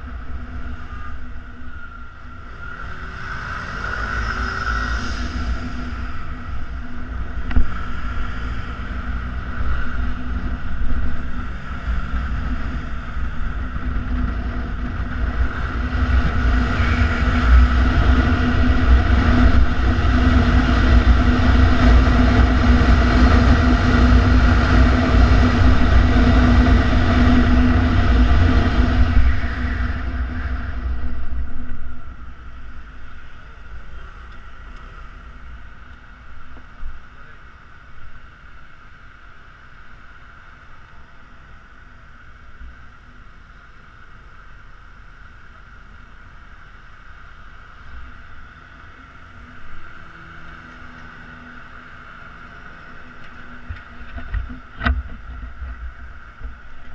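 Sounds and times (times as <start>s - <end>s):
wind rush: 0.0s - 33.0s.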